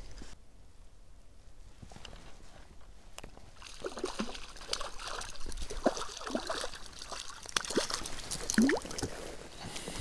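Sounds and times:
fish splashing at water surface: 3.6 - 9.2.

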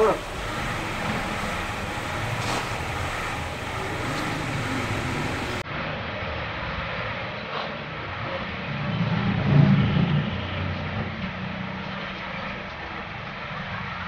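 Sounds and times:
car engine running: 0.0 - 5.6.

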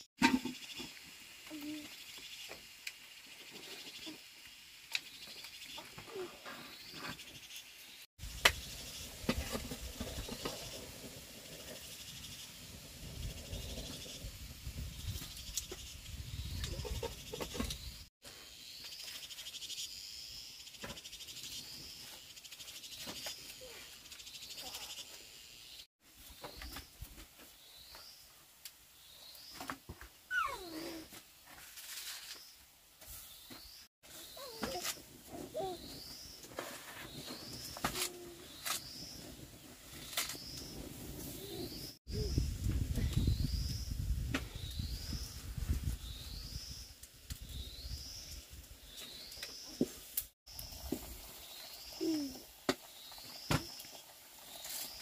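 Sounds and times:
birds chirping: 33.2 - 50.0.

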